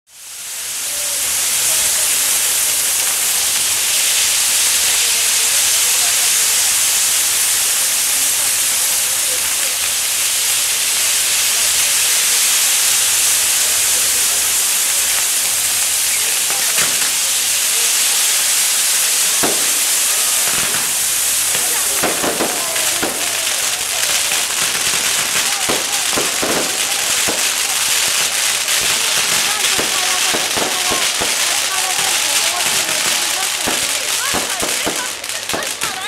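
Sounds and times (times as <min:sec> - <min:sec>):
firework fountains hissing: 0:00.1 - 0:36.0
sharp cracks: 0:08.7 - 0:36.0.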